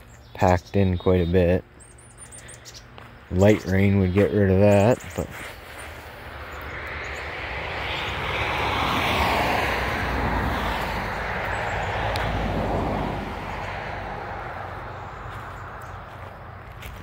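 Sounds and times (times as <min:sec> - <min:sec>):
vehicle passing by: 0:04.9 - 0:17.0.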